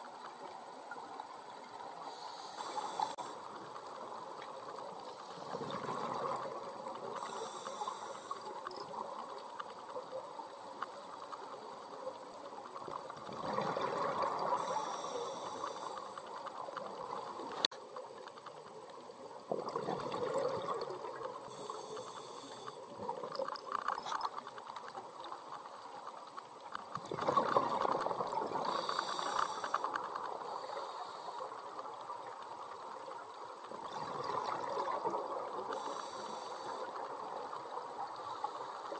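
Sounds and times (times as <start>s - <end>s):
regulator inhalation hiss: 2.0s - 4.2s, 7.0s - 8.7s, 14.5s - 16.6s, 21.4s - 23.0s, 28.6s - 32.0s, 35.6s - 37.2s.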